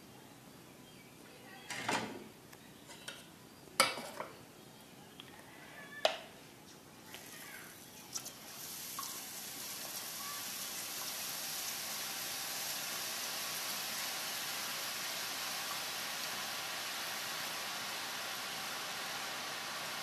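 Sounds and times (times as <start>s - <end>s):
batter frying in sizzling oil: 7.2s - 20.0s.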